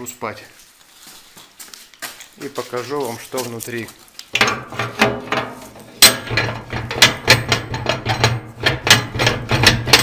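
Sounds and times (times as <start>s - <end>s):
metallic knocking and clanking: 4.4s - 10.0s.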